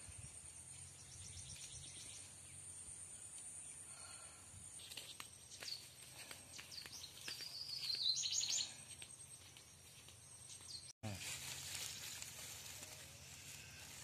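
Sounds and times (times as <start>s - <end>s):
birds chirping: 0.0s - 11.3s
footsteps on dry leaves: 4.8s - 14.0s
thin insect whine: 11.0s - 14.0s.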